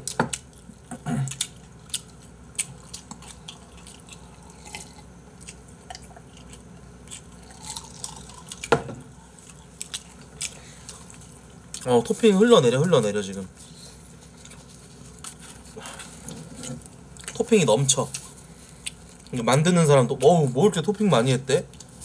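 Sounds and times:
chewing: 0.0s - 12.0s, 13.6s - 17.4s, 18.0s - 19.4s.

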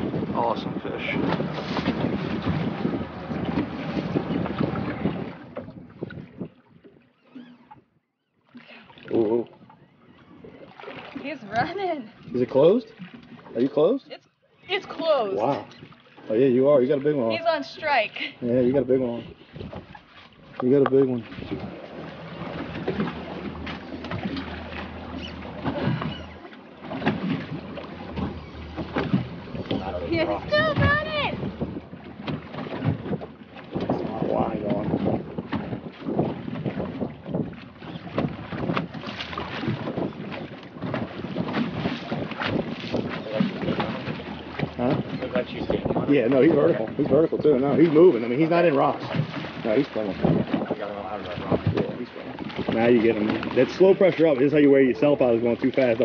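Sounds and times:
wind buffeting microphone: 0.0s - 6.9s, 18.4s - 56.0s
boat engine humming: 0.0s - 56.0s
knocks and thumps: 26.9s - 35.8s.

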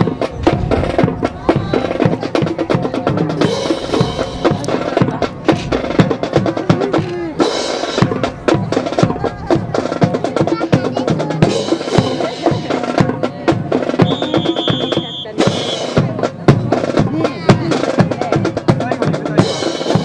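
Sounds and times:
marching band music: 0.0s - 20.0s.

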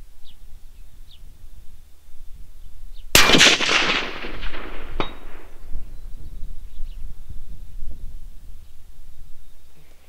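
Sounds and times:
rifle shot with echo: 3.1s - 6.0s.

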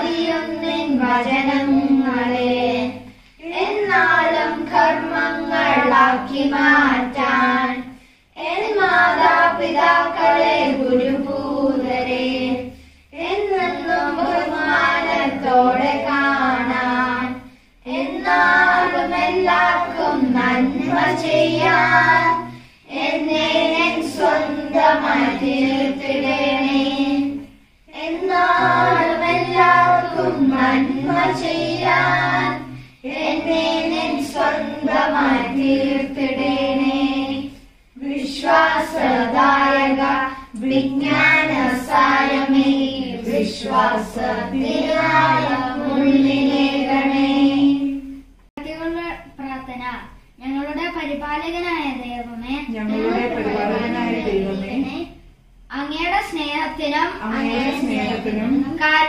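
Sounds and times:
family singing a hymn: 0.0s - 48.2s, 52.8s - 55.1s, 57.2s - 58.9s.

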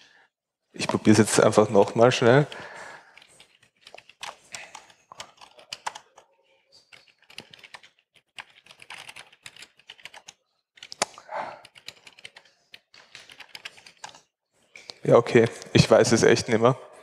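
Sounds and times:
typing on laptop keyboard: 2.4s - 14.3s.

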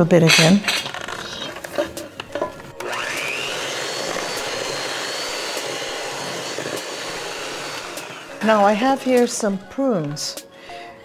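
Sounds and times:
electric hand mixer whining: 2.3s - 10.3s.

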